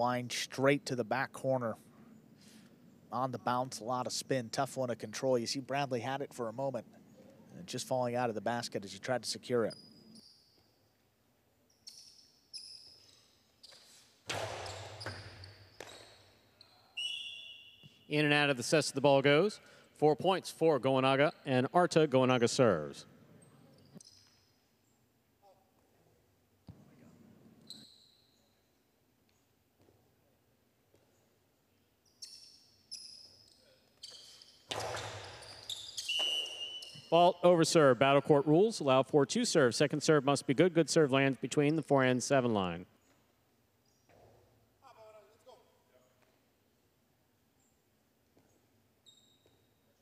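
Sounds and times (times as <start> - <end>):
ball striking walls: 14.2 - 16.0, 34.7 - 35.5.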